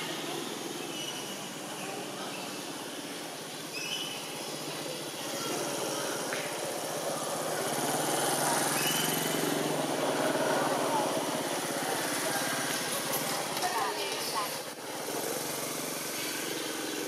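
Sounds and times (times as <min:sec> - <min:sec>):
small engine running: 0:04.5 - 0:13.7, 0:14.7 - 0:17.0.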